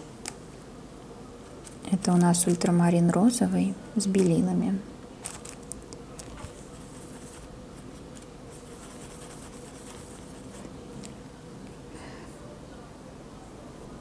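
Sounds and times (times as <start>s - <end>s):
low room hum: 0.0s - 14.0s
paintbrush scratching on palette: 6.2s - 10.8s.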